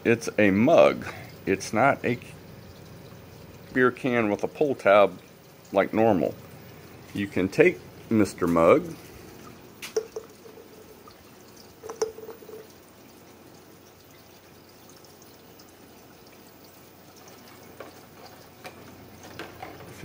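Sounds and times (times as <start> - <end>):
water trickling in pipes: 0.0 - 20.0
can set down with ticks: 9.8 - 10.7, 11.8 - 12.7.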